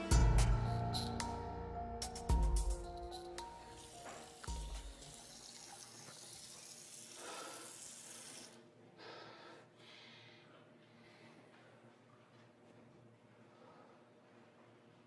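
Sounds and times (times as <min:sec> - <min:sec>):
tap water running into sink: 0:03.7 - 0:08.6
man breathing: 0:07.1 - 0:12.0, 0:13.4 - 0:14.5.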